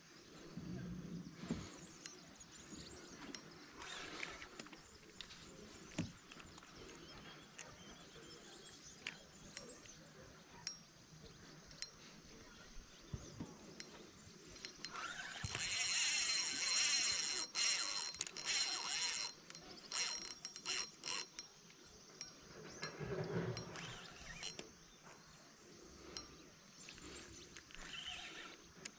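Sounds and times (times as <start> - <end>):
fishing reel whirring: 14.5 - 21.6, 23.6 - 24.7, 27.6 - 28.9
fishing reel clicks: 14.6 - 22.3, 23.6 - 24.7, 27.5 - 28.9.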